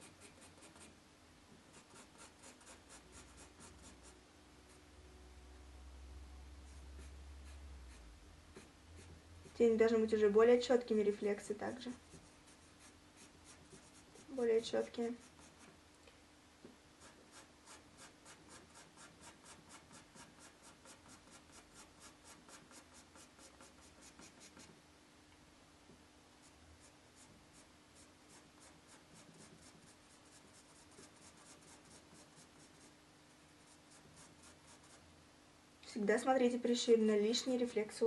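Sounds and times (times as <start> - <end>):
pencil strokes on paper: 0.0 - 1.0, 1.6 - 4.8, 6.7 - 9.9, 11.0 - 15.8, 17.0 - 24.8, 26.4 - 35.1, 37.3 - 38.0.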